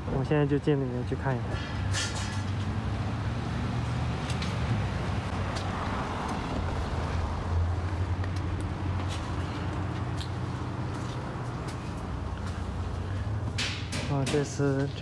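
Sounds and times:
vehicle engine rumble: 0:00.0 - 0:15.0.

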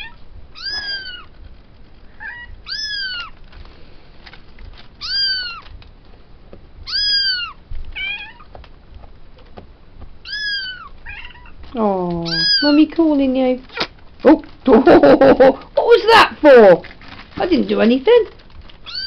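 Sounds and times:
cat meowing: 0:00.0 - 0:01.3, 0:02.2 - 0:03.4, 0:05.0 - 0:05.7, 0:06.8 - 0:08.5, 0:10.2 - 0:11.6, 0:12.2 - 0:12.8.

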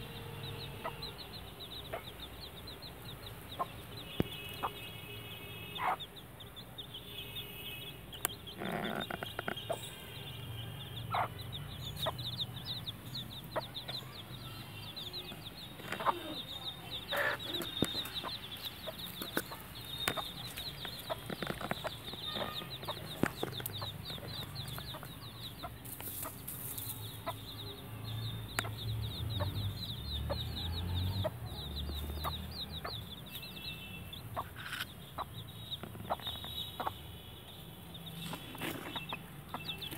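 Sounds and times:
chicks peeping: 0:00.0 - 0:39.9
hen clucking: 0:05.8 - 0:06.1, 0:11.1 - 0:11.4, 0:15.2 - 0:26.4, 0:34.3 - 0:37.0.

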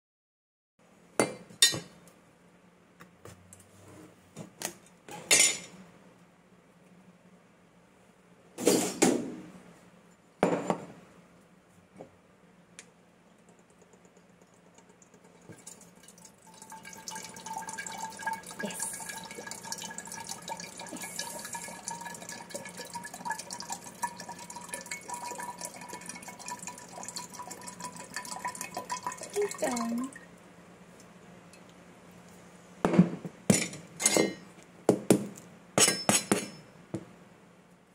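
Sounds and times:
water trickling into glass bottle: 0:13.8 - 0:30.2.

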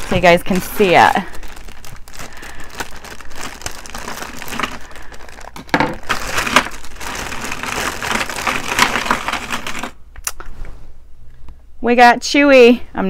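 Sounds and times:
packaging crinkling: 0:00.0 - 0:10.0.

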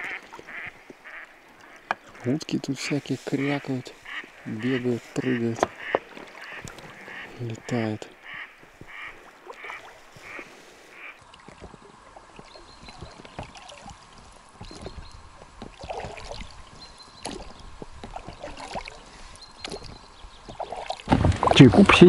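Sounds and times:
ducks quacking: 0:00.0 - 0:11.2
oars knocking and splashing: 0:00.0 - 0:22.0.

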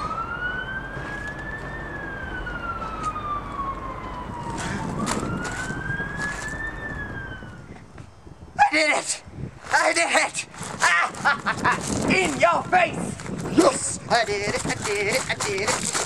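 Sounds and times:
emergency siren wailing: 0:00.0 - 0:08.4.

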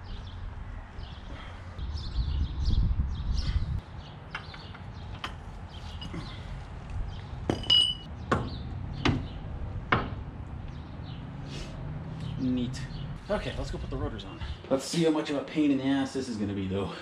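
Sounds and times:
metal tools clinking on concrete: 0:07.5 - 0:08.1.

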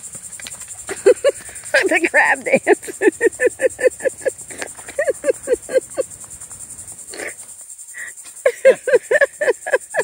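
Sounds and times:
insects buzzing: 0:00.0 - 0:10.0.

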